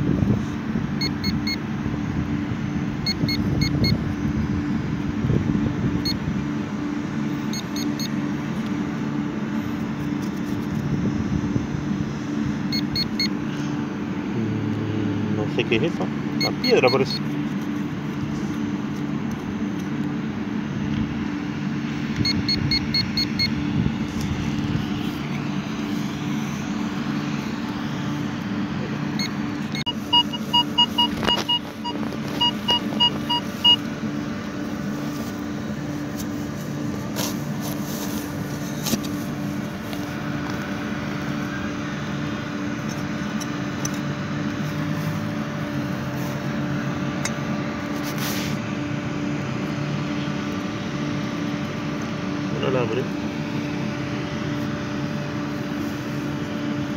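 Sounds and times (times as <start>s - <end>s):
steady low hum: 0.0s - 56.9s
metal detector beeps: 1.0s - 1.6s, 3.0s - 4.0s, 6.0s - 6.2s, 7.4s - 8.2s, 12.7s - 13.4s, 16.4s - 17.3s, 22.2s - 23.6s, 29.2s - 33.9s.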